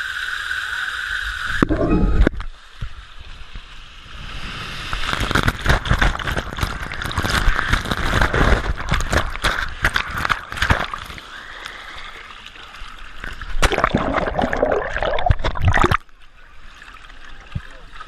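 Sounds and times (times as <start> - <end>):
water rushing and splashing: 1.3 - 18.0.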